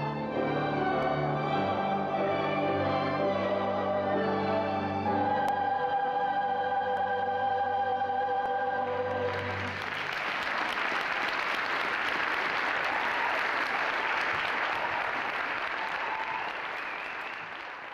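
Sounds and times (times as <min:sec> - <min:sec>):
held music chord: 0:00.0 - 0:09.7
audience applause: 0:09.1 - 0:17.9.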